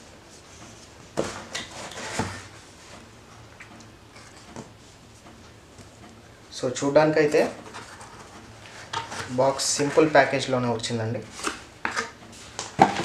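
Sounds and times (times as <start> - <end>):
cardboard scraping and rustling: 1.2 - 2.6.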